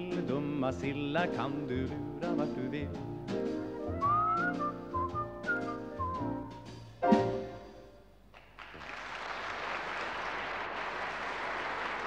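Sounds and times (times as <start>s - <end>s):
audience applause: 8.3s - 12.0s.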